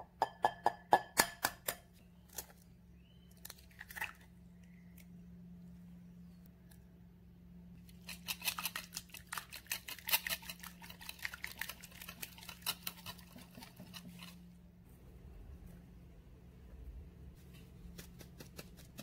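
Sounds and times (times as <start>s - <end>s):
wire whisk beating batter in bowl: 8.0s - 14.3s.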